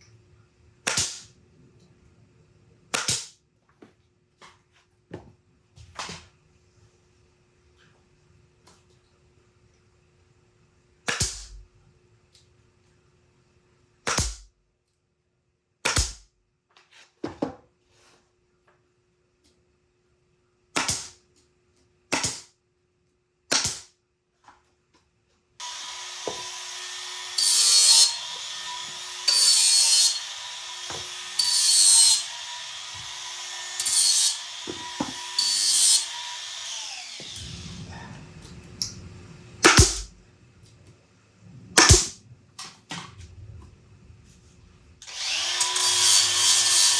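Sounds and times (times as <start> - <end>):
nail gun shots: 0.8 - 1.3, 2.9 - 3.4, 11.1 - 11.6, 14.0 - 14.5, 15.8 - 16.3, 20.8 - 21.2, 22.1 - 22.6, 23.5 - 24.0, 39.6 - 40.1, 41.8 - 42.2.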